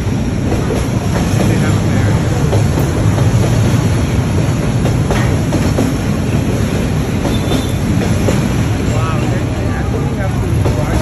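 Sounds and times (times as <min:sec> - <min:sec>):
train wheels clacking: 0:00.0 - 0:11.0
train wheels rumbling on rails: 0:00.0 - 0:11.0
high wheel squeal: 0:07.2 - 0:08.0.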